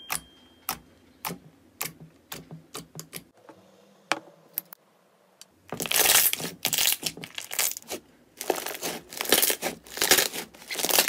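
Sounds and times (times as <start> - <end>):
slime crackling and popping: 5.7 - 11.0.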